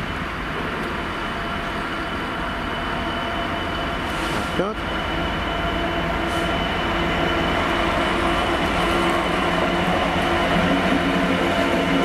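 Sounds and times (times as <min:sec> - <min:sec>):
diesel locomotive engine drone: 0:00.0 - 0:12.0.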